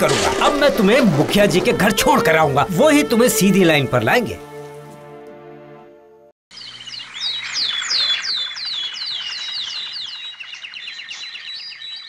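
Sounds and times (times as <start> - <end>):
birds chirping: 6.5 - 12.0.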